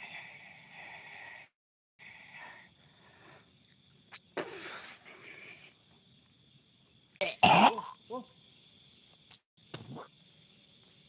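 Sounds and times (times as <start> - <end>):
night forest background: 0.0 - 11.0.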